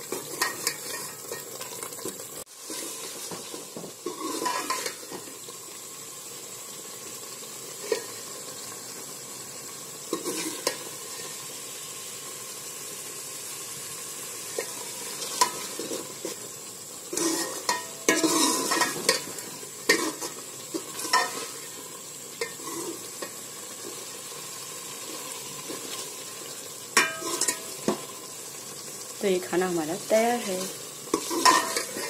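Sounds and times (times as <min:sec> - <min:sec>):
ladle scraping and clinking on pot: 0:00.1 - 0:01.8, 0:02.7 - 0:05.2, 0:10.1 - 0:10.8, 0:17.1 - 0:21.6, 0:22.4 - 0:23.4, 0:27.0 - 0:28.0, 0:31.1 - 0:32.0.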